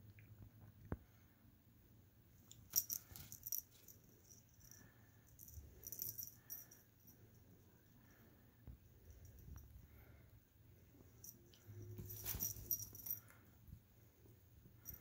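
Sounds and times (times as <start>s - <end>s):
cat toy streamers rattling: 12.0s - 13.2s.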